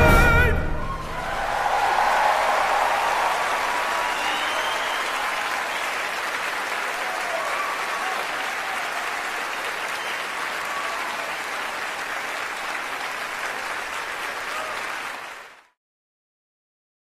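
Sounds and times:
audience applauding: 0.8s - 15.8s.

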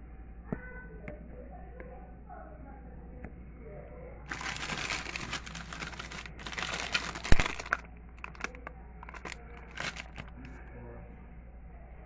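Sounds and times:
rustling crinkling handling noise: 4.3s - 10.6s.

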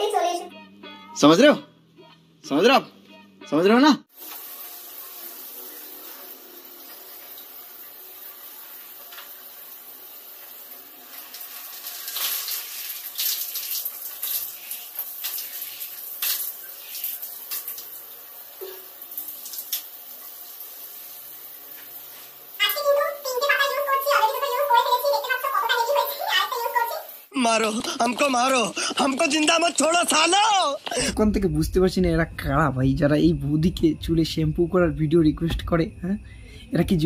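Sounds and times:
water running from tap: 4.1s - 27.3s.

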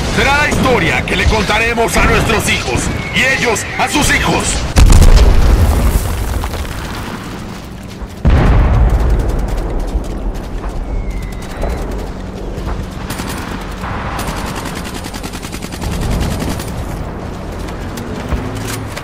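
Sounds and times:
gunshots: 4.6s - 7.2s
explosion rumble: 4.7s - 7.4s, 8.2s - 12.1s
steady low rumble: 4.7s - 17.5s
rapid machine-gun fire: 13.0s - 16.9s.

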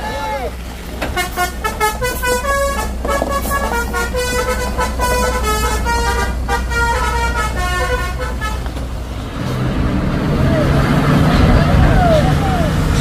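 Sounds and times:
bus engine running: 0.0s - 13.0s
heavy truck engine: 0.0s - 13.0s
multi-tone bus horn melody: 1.0s - 8.9s.

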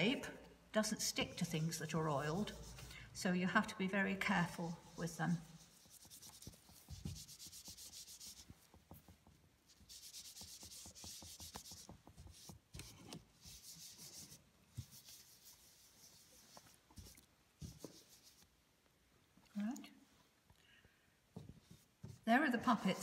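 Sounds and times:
cloth scrubbing strokes: 1.1s - 3.0s, 4.3s - 18.5s.

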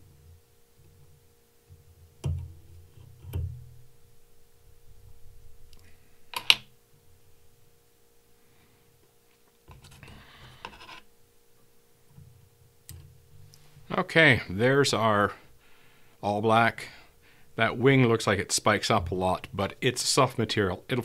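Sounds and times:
faint steady hum: 0.0s - 21.0s
scratchy rustle: 9.7s - 11.1s.

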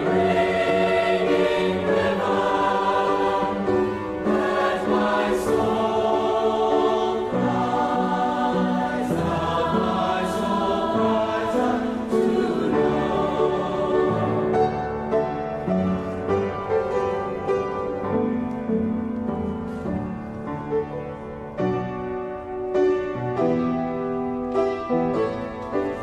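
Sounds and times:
choir singing: 0.0s - 15.7s
musical accompaniment: 0.0s - 26.0s.

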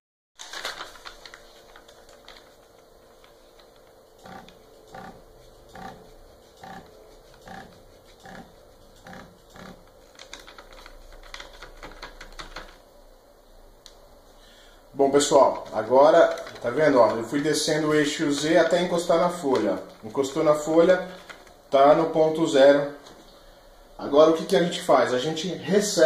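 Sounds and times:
rustling: 0.4s - 5.1s
stepper motor buzzing in steps: 2.3s - 10.2s.

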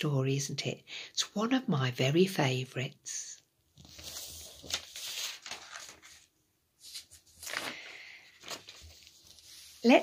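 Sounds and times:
soft rustling and handling noise: 3.7s - 10.0s.

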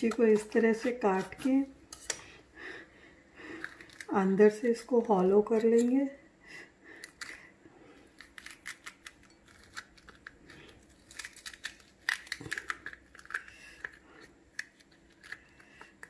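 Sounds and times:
spoon scraping chili seeds: 0.0s - 2.2s.

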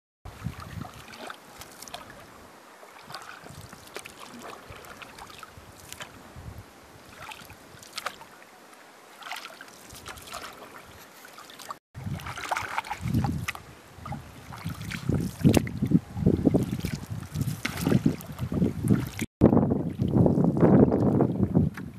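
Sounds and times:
water splashes and drips: 0.3s - 21.8s
paddle strokes in water: 0.3s - 21.9s.

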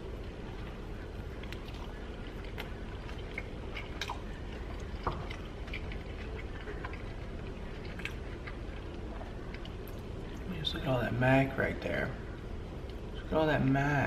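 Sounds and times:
man chewing food: 0.0s - 13.8s
low background hum: 0.0s - 14.0s
wet mouth clicks and smacks: 1.3s - 10.5s.

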